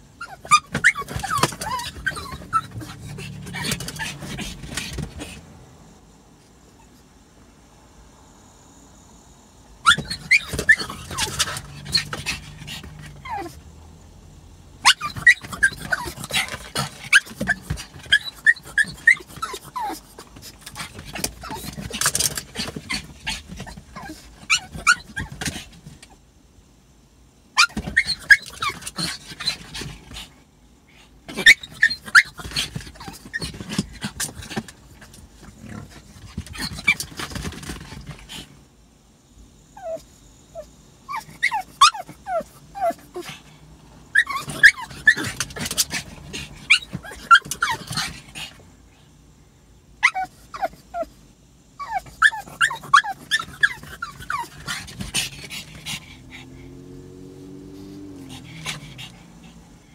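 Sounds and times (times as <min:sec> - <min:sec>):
dog whining and yipping: 0:00.2 - 0:05.4, 0:09.8 - 0:13.6, 0:14.8 - 0:26.2, 0:27.6 - 0:30.2, 0:31.3 - 0:38.2, 0:39.8 - 0:43.5, 0:44.1 - 0:48.5, 0:50.0 - 0:51.1, 0:51.8 - 0:59.6.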